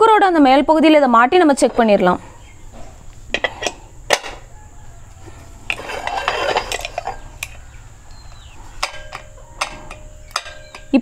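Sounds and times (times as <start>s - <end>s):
metal lid scraping: 1.6s - 11.0s
metal clicks: 5.6s - 7.7s, 8.3s - 11.0s.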